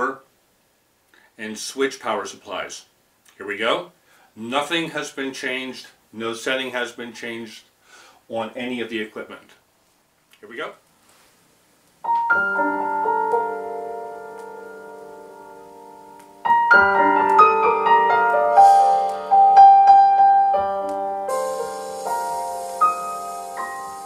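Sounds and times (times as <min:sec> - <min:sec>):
solo piano: 0:12.0 - 0:24.0
high shimmering sound: 0:18.6 - 0:19.6, 0:21.3 - 0:24.0.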